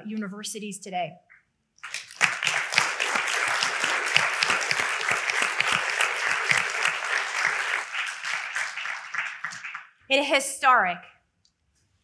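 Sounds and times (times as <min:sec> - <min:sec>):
audience applause: 0:01.8 - 0:09.9.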